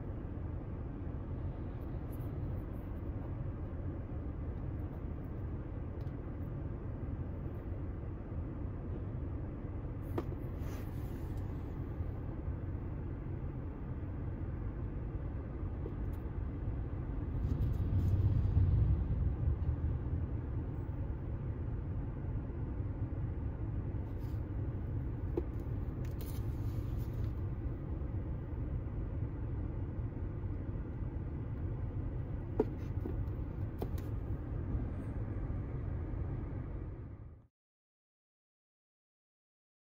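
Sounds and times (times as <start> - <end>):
car cabin rumble: 8.5 - 37.1.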